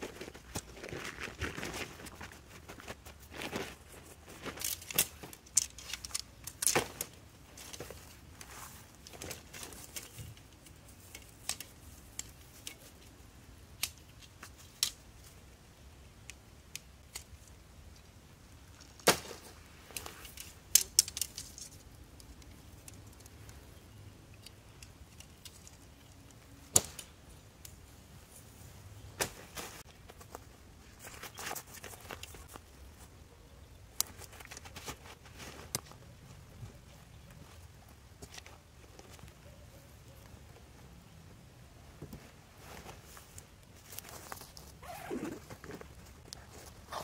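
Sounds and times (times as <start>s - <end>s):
tent fabric rustling: 0.0s - 5.4s, 6.8s - 11.0s, 42.1s - 47.0s
tent poles clacking together: 0.0s - 15.4s, 18.7s - 23.6s, 24.3s - 27.8s, 29.2s - 32.7s, 33.9s - 36.0s, 42.0s - 47.0s.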